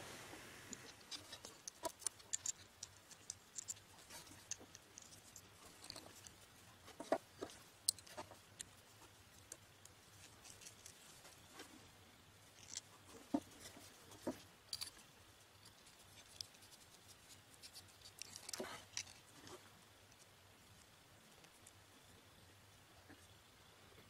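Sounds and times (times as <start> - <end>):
faint low hum: 0.0 - 24.0
small metal parts clicking: 0.7 - 6.4, 7.4 - 11.1, 12.5 - 12.9, 14.7 - 19.3.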